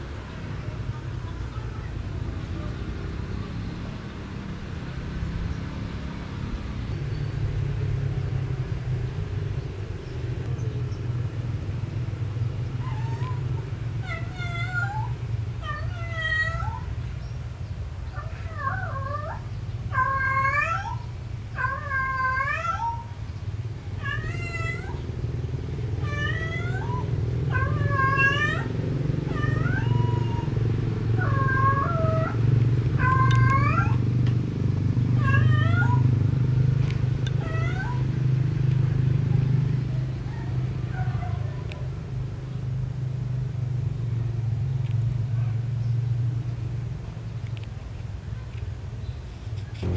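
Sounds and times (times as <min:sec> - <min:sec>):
cat meowing and yowling: 0:12.8 - 0:16.9, 0:18.1 - 0:21.0, 0:21.6 - 0:23.1, 0:24.0 - 0:25.0, 0:26.0 - 0:30.6, 0:31.2 - 0:32.4, 0:33.0 - 0:34.0, 0:35.2 - 0:36.1, 0:37.3 - 0:38.1, 0:40.3 - 0:41.6
steady low rumble: 0:42.0 - 0:49.9.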